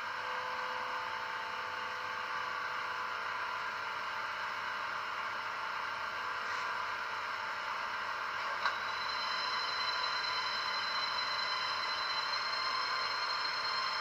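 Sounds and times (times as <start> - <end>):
high steady whine: 0.0 - 14.0
model locomotive hiss and tones: 8.4 - 14.0.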